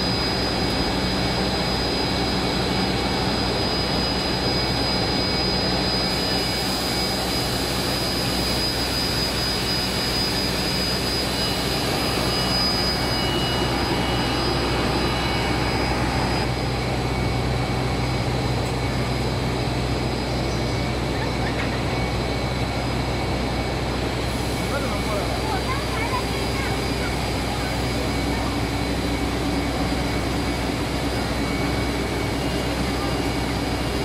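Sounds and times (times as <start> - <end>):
thin high whines: 0.0 - 16.6.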